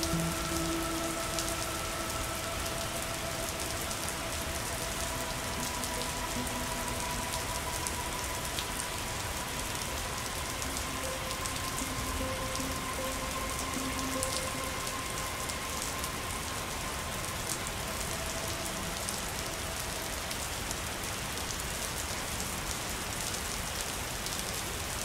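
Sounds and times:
steady rain: 0.0 - 25.0.

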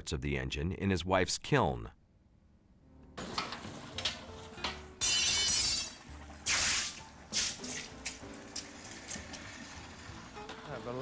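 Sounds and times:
water hissing on hot metal: 5.0 - 11.0.

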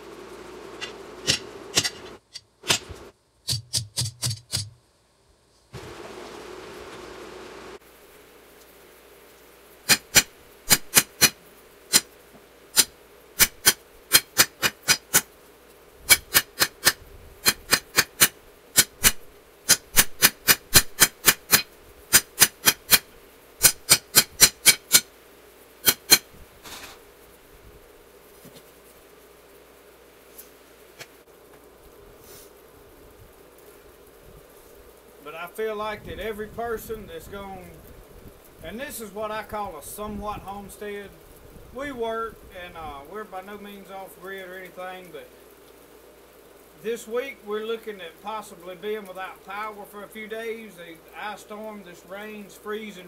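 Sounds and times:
faint steady hum: 0.0 - 3.6, 4.6 - 53.0
hammer striking steel on anvil: 0.8 - 4.8, 9.9 - 12.1, 23.6 - 25.0.

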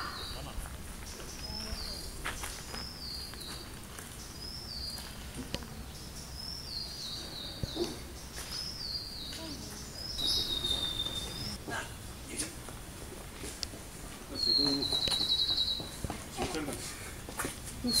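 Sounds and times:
outdoor background noise: 0.0 - 18.0
bird whistle calls: 10.1 - 11.6, 14.4 - 16.0.

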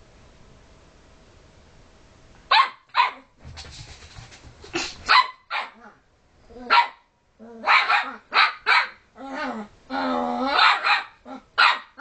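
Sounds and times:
dog barking: 2.5 - 3.3, 5.1 - 5.8, 6.7 - 9.0, 10.5 - 12.0.

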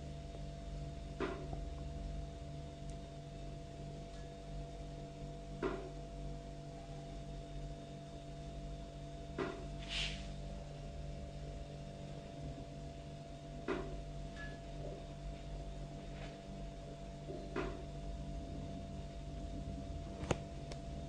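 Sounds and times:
electrical hum: 0.0 - 21.0
short hiss: 9.8 - 10.3.

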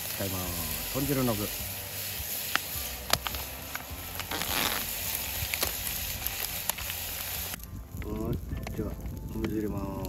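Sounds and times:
plastic rustle: 0.0 - 7.6
steady hiss: 0.0 - 10.0
plastic pouch crinkling: 2.4 - 7.6.

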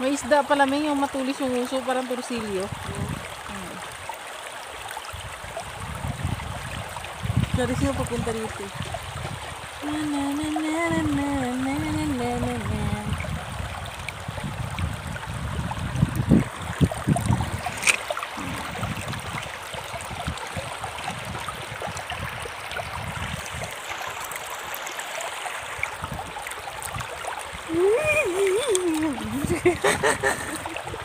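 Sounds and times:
river water running over stones: 0.0 - 31.0.

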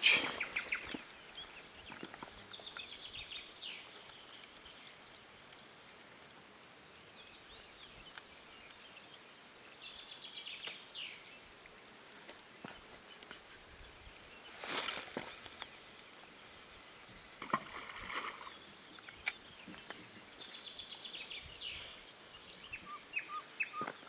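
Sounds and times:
songbird singing: 0.0 - 24.0
faint clicks: 4.0 - 8.8.

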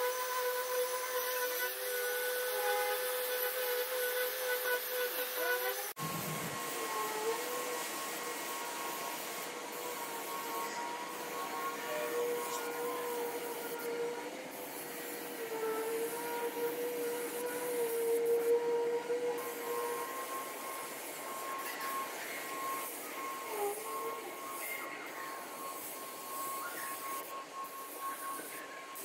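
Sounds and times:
paint spray gun hissing: 2.5 - 13.9, 19.3 - 25.9, 26.6 - 28.6
steady high whine: 6.0 - 14.8.

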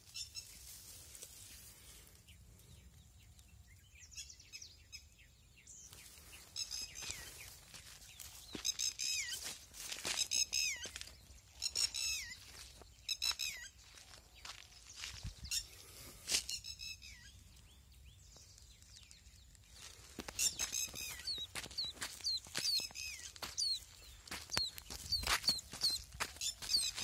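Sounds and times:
bird chick peeping: 5.9 - 19.0, 19.8 - 27.0.

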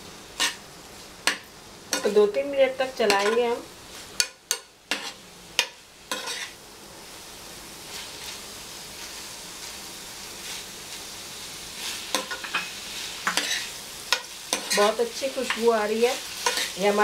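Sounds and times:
food sizzling in a frying pan: 0.0 - 17.0
metal spoon scraping a pan: 0.4 - 0.6, 3.0 - 3.6, 4.2 - 6.6, 11.9 - 17.0.

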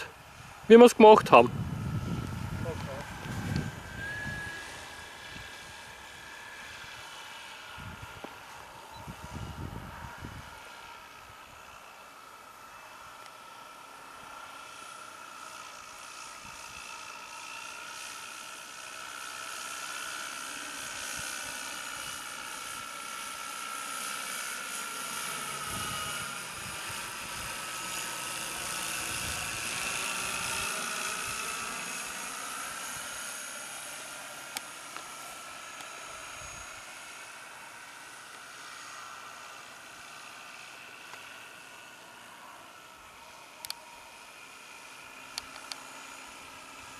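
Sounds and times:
model plane motor whining: 0.0 - 46.9.

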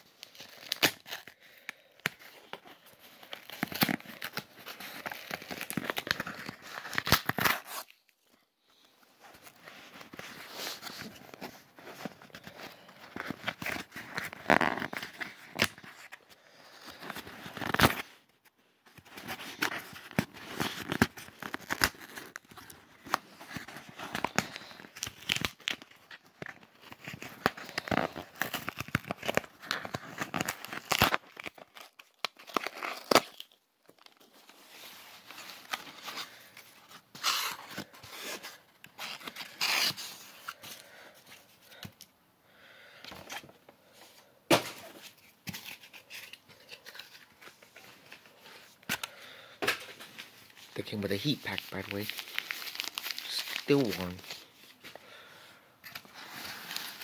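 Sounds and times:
packing material crinkling: 0.0 - 42.1, 44.8 - 57.0
packing tape tearing: 0.2 - 8.1, 10.2 - 16.1, 16.8 - 18.2, 19.0 - 34.2, 35.2 - 40.6, 51.1 - 54.5.

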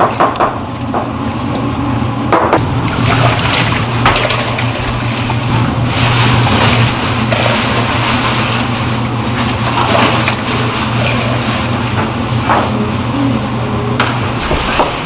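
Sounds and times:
broth poured and splashing: 2.6 - 12.5.

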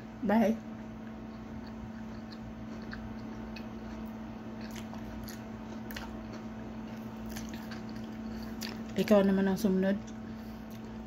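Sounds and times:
low electrical hum: 0.0 - 11.0
chewing and wet mouth clicks: 1.0 - 9.0.

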